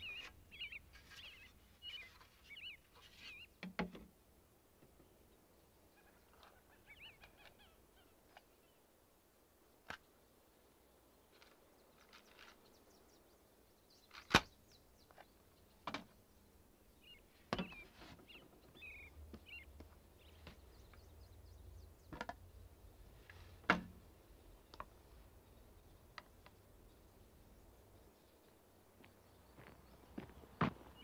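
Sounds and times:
faint bird chirps: 0.0 - 3.6, 5.0 - 8.9, 11.0 - 23.4.

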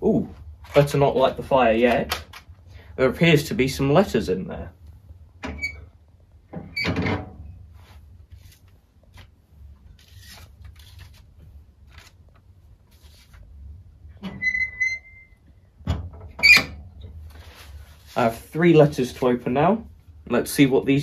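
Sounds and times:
paper rustling: 7.8 - 13.5, 17.2 - 18.4
short squeak: 14.3 - 15.4.

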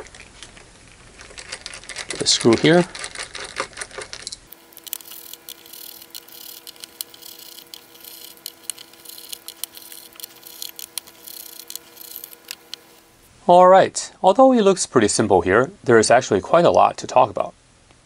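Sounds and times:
faint steady hum: 2.9 - 18.0
screwdriver clicking on metal screws: 4.5 - 13.1.

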